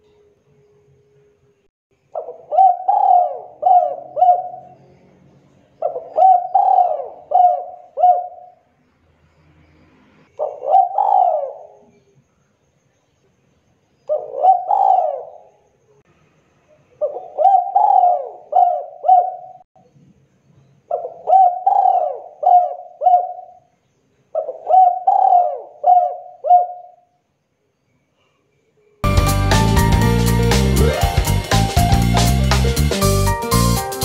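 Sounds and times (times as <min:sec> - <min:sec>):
dove cooing: 0:02.2 - 0:04.8, 0:05.8 - 0:08.6, 0:10.4 - 0:12.0, 0:14.1 - 0:15.6, 0:17.0 - 0:19.6, 0:20.9 - 0:23.6, 0:24.4 - 0:27.0.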